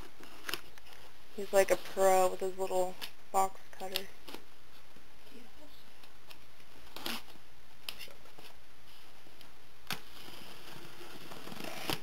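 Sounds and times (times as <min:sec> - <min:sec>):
box cutter slitting packing tape: 0:06.9 - 0:07.3, 0:09.9 - 0:12.0
scratchy sound: 0:10.0 - 0:12.0.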